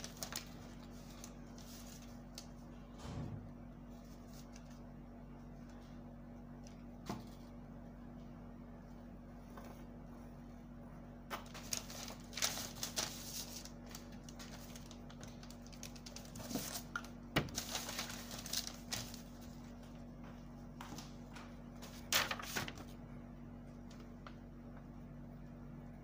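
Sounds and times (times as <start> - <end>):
paper rustling and scraping: 0.0 - 2.6, 3.9 - 4.8, 11.3 - 19.8, 21.8 - 23.0
steady low hum: 0.0 - 26.0.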